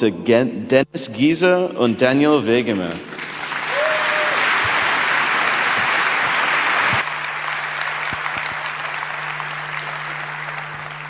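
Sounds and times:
audience applauding: 3.0 - 11.0.

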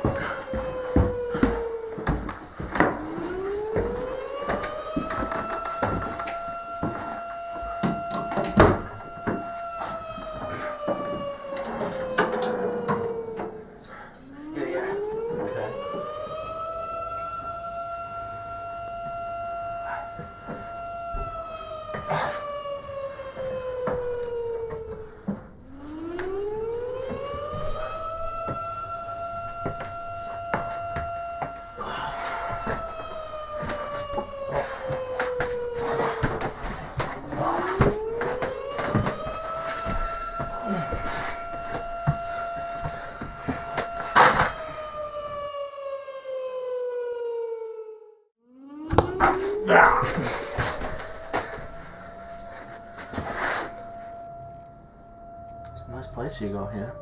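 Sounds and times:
footsteps on wooden ladder: 0.0 - 13.6, 19.0 - 45.6, 49.0 - 54.2
alarm siren wailing: 0.0 - 57.0.

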